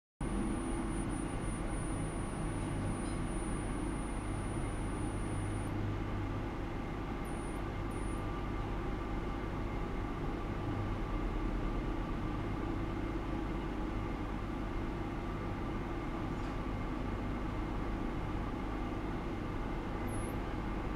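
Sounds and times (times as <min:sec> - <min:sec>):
faint high whine: 0:00.2 - 0:05.8, 0:07.2 - 0:08.3, 0:20.0 - 0:20.5
electronics hum and hiss: 0:00.2 - 0:20.9.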